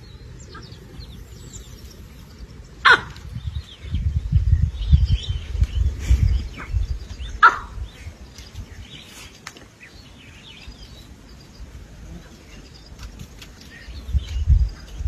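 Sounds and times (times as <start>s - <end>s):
sharp loud animal call: 2.8s - 3.2s, 7.4s - 7.8s.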